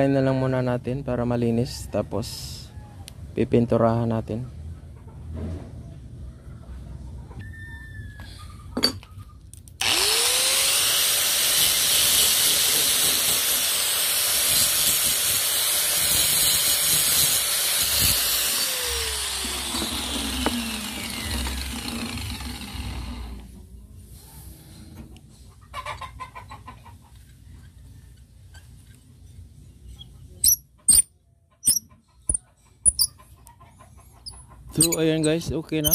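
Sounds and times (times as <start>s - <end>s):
grinder grinding steel: 9.8s - 23.5s, 30.4s - 33.1s, 34.2s - 35.9s.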